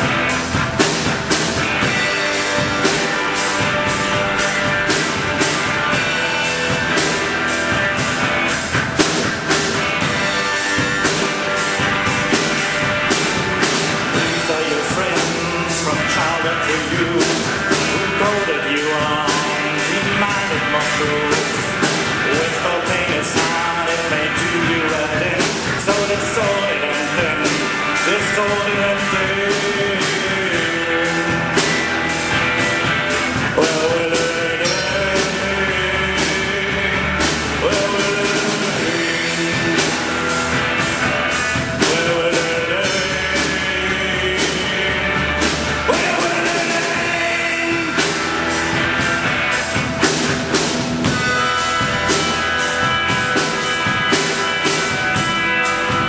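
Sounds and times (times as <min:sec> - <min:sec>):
drum kit with cymbals: 0:00.0 - 0:56.0
electric guitar: 0:00.0 - 0:56.0
man singing: 0:13.6 - 0:49.5.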